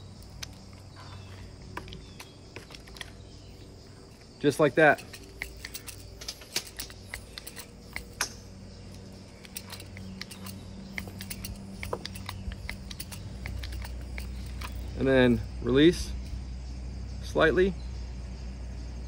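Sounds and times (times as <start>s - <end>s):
crimping tool clicks: 4.6s - 15.0s.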